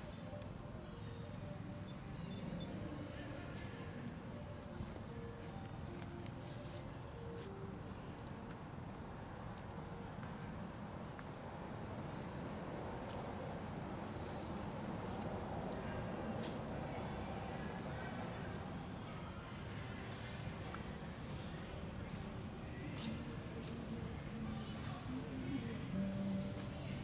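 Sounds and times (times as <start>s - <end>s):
insects droning: 0.0s - 27.0s
low outdoor hum: 0.0s - 27.0s.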